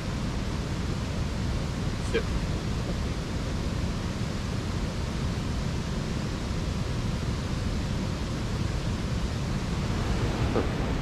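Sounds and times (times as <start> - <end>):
steady low rushing noise: 7.7 - 11.0.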